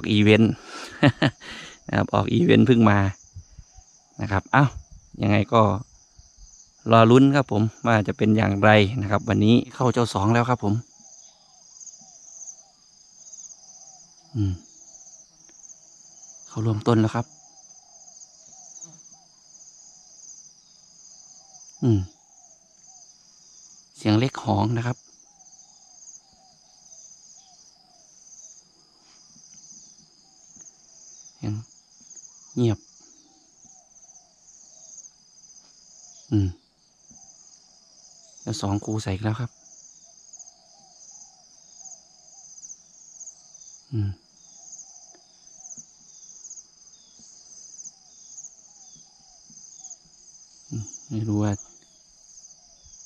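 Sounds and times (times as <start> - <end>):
high-pitched insect chorus: 0.0 - 53.0.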